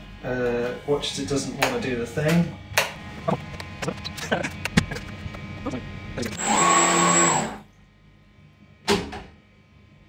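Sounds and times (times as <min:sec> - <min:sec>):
electric propeller motors whining: 0:03.1 - 0:07.7.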